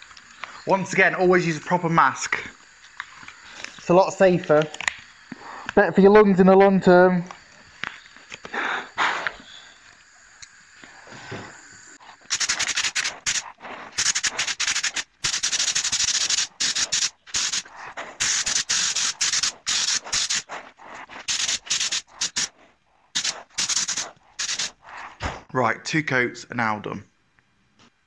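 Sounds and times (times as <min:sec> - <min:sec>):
spray gun hissing bursts: 0:08.4 - 0:24.9.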